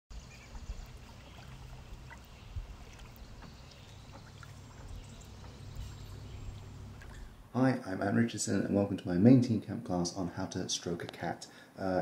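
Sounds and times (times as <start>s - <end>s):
low steady rumble: 0.1s - 7.6s.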